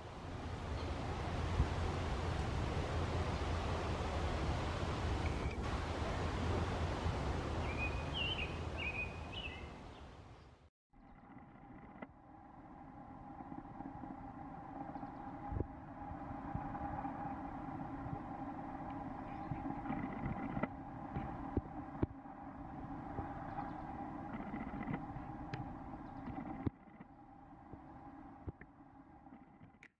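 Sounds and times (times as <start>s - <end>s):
steady rushing outdoor noise: 0.0s - 10.3s, 11.8s - 29.8s
low hum: 11.0s - 29.9s.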